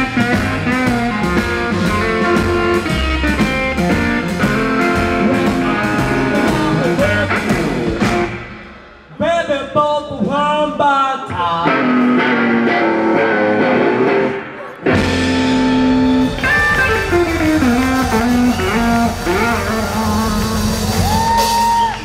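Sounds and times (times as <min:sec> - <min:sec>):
drums: 0:00.0 - 0:22.0
upright bass: 0:00.0 - 0:22.0
electric guitar solo: 0:11.6 - 0:22.0.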